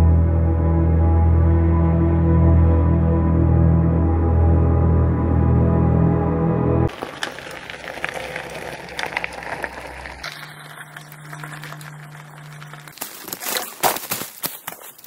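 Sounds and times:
bike tyres crunching on gravel: 0:06.9 - 0:15.0.

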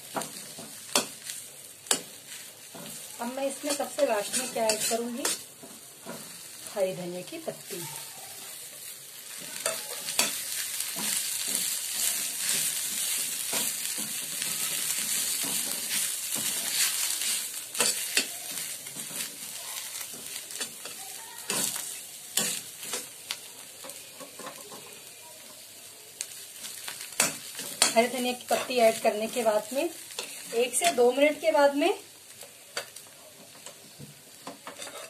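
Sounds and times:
frying sizzle: 0:00.0 - 0:35.0
metal spoon scraping a pan: 0:00.3 - 0:06.5, 0:09.2 - 0:23.2, 0:26.8 - 0:31.2, 0:34.5 - 0:35.0.

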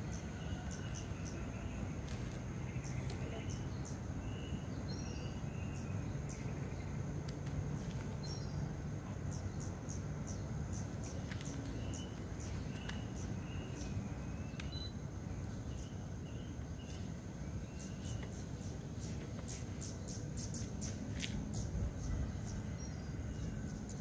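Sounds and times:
bird chirps: 0:09.3 - 0:24.0.

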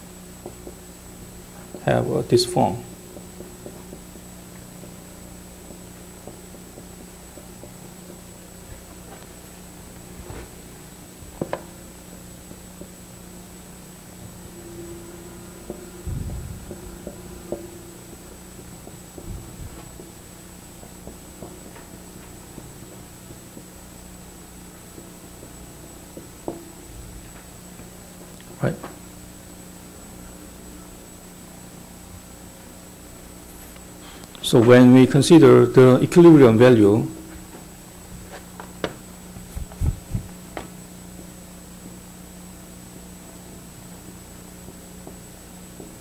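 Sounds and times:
thin steady high tone: 0:00.0 - 0:38.0
steady low hum: 0:00.0 - 0:46.0
faint ticks and taps: 0:00.4 - 0:00.8, 0:05.6 - 0:09.3.

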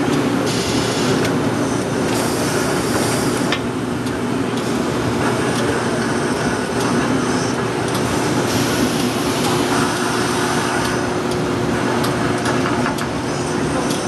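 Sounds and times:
steady machine hum: 0:00.0 - 0:14.0
ironing machines rushing noise: 0:05.4 - 0:11.2.

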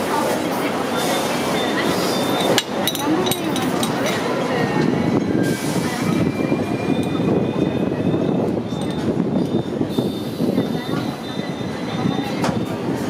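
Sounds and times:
tram wheels rumbling on rails: 0:00.0 - 0:13.0
faint high wheel squeal: 0:00.9 - 0:02.6, 0:05.0 - 0:12.9.

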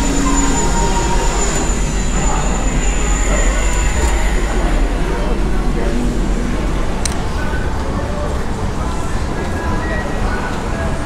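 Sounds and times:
thin high whine: 0:00.0 - 0:07.9
low rumble: 0:00.0 - 0:09.0.

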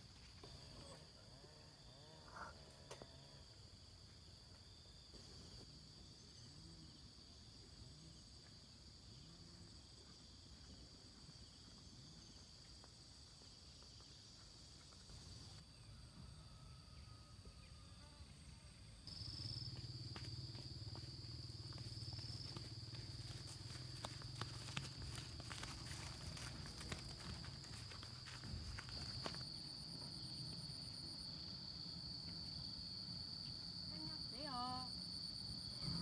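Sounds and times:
insect chirring: 0:11.3 - 0:36.0.

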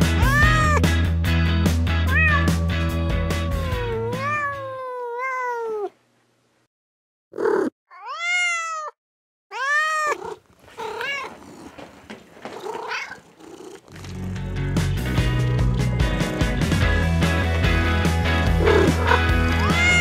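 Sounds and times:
music: 0:00.0 - 0:04.4, 0:13.9 - 0:20.0
cat meowing: 0:00.1 - 0:00.8, 0:02.1 - 0:06.0, 0:07.4 - 0:11.6, 0:12.7 - 0:13.3, 0:18.6 - 0:20.0.

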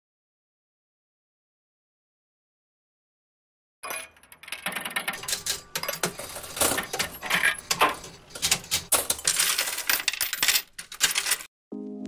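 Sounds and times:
coin-like metallic clinks: 0:03.8 - 0:11.5.

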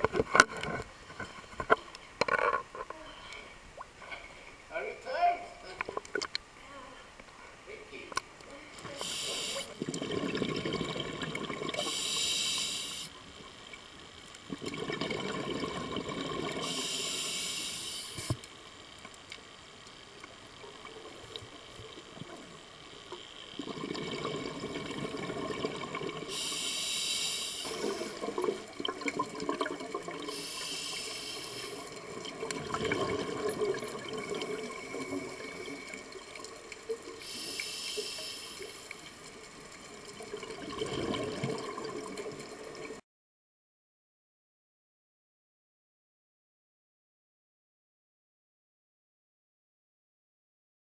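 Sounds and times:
regulator air hiss: 0:08.9 - 0:09.8, 0:11.8 - 0:13.2, 0:16.6 - 0:18.4, 0:26.3 - 0:28.2, 0:30.3 - 0:31.9, 0:37.2 - 0:38.9
exhaled bubbles bubbling: 0:09.1 - 0:12.8, 0:14.4 - 0:17.4, 0:23.5 - 0:26.6, 0:27.6 - 0:31.1, 0:31.7 - 0:37.2, 0:38.9 - 0:43.0.

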